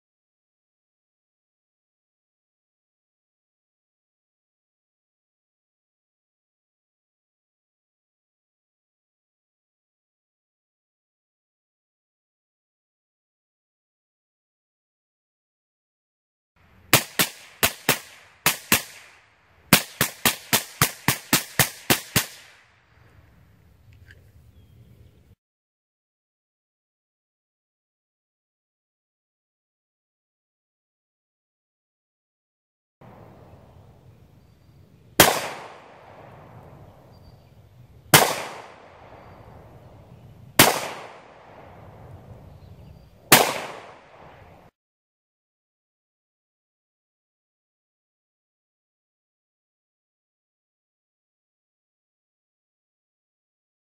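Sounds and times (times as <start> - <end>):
gunshots with echo: 16.9 - 22.7, 35.2 - 36.9, 38.1 - 39.6, 40.6 - 42.0, 43.3 - 44.6.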